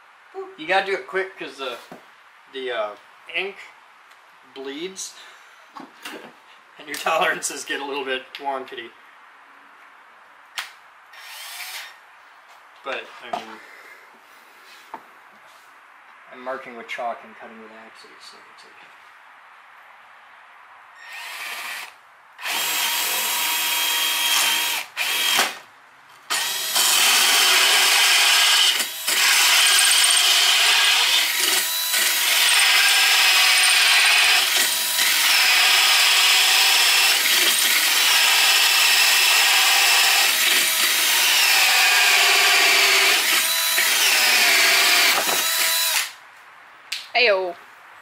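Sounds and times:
cordless drill cutting into wood: 0:11.1 - 0:12.0, 0:21.0 - 0:25.6, 0:26.3 - 0:46.2.

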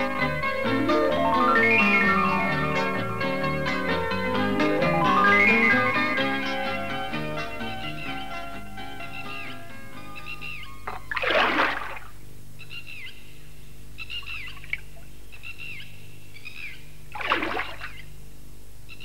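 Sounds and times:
low steady hum: 0:02.2 - 0:19.0
water splashes: 0:10.9 - 0:12.2, 0:17.1 - 0:18.0.

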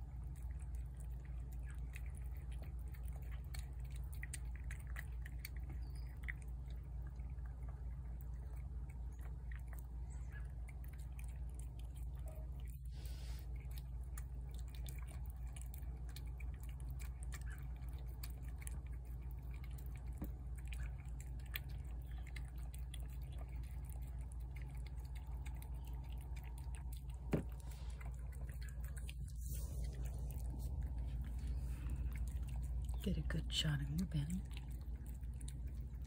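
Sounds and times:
cat chewing wet food: 0:00.0 - 0:36.0
low steady rumble: 0:00.0 - 0:36.0.

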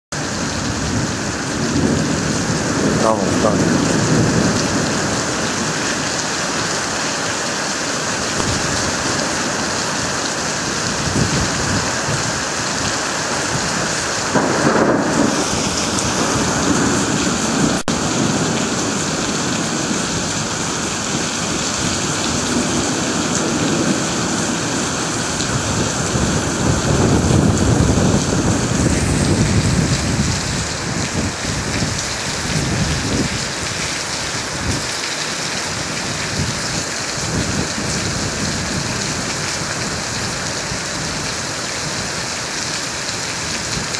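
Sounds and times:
heavy rain pouring: 0:00.1 - 0:43.9
thunder rumbling: 0:00.2 - 0:06.2, 0:08.3 - 0:33.8.

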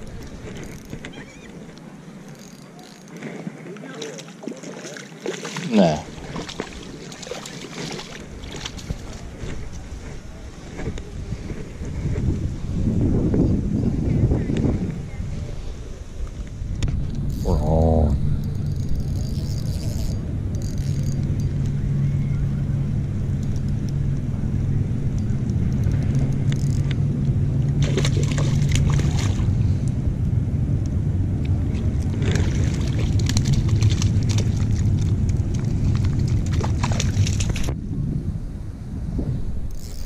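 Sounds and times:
fish splashing at water surface: 0:03.8 - 0:09.2, 0:27.8 - 0:29.5, 0:31.7 - 0:37.7
steady low rumble: 0:08.1 - 0:39.9.

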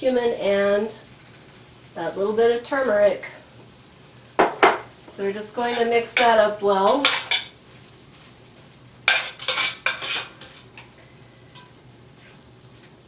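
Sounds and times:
spoon scraping a metal pot: 0:05.6 - 0:07.5, 0:09.1 - 0:10.9.

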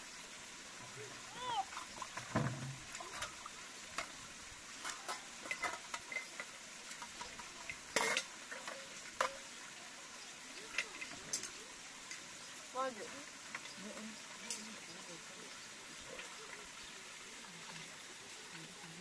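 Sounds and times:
dishes and utensils clinking: 0:04.8 - 0:09.4.

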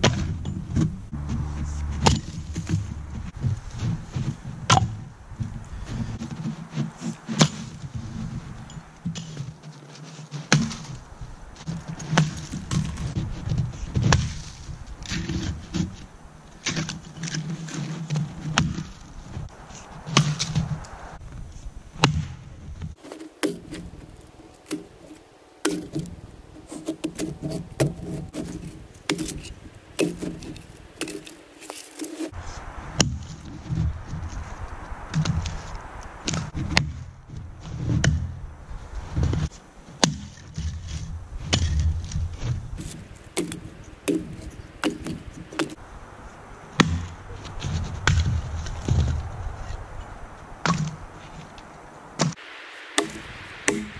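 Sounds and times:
axe chopping wood: 0:00.0 - 0:03.6, 0:04.7 - 0:05.0, 0:23.0 - 0:32.4, 0:38.0 - 0:38.3, 0:40.0 - 0:40.4, 0:42.8 - 0:45.8, 0:52.2 - 0:53.9.

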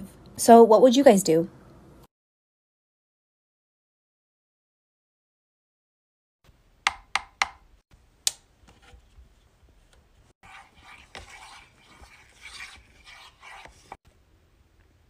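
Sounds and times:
sharp knocks: 0:06.9 - 0:07.7
spatula scraping metal pot: 0:10.4 - 0:14.0.

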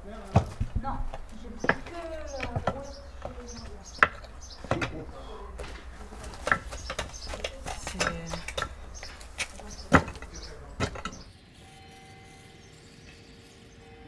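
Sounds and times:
knocks on wooden post: 0:00.3 - 0:11.3.

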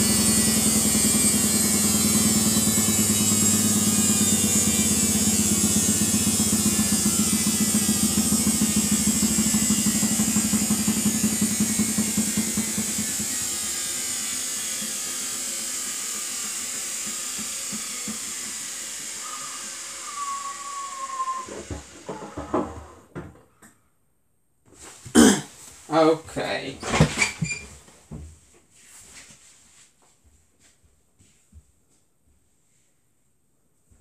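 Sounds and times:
washing machine drum slowing: 0:00.0 - 0:13.3
brief whine: 0:19.2 - 0:23.0.

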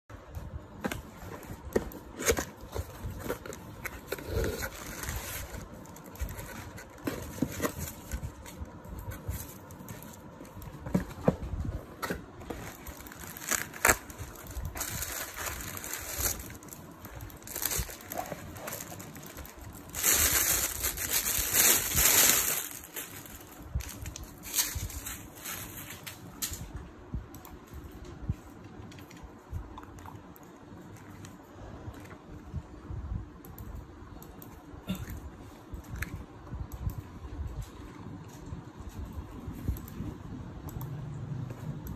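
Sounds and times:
cardboard and wrappings rustling: 0:00.8 - 0:26.2.

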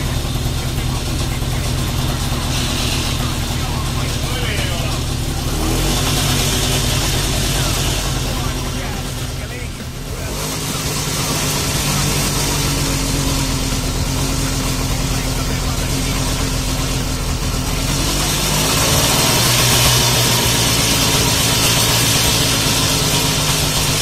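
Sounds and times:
motorcycle two-stroke engine running: 0:00.0 - 0:24.0.

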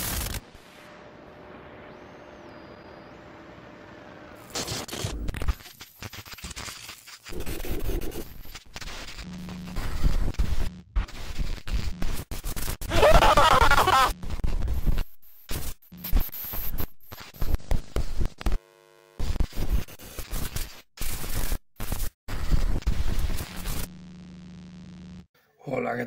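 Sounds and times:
glitch and static noise: 0:00.0 - 0:25.3
faint buzzing tone: 0:00.6 - 0:04.5, 0:18.6 - 0:19.2
garbled voice-like warble: 0:07.4 - 0:08.3.

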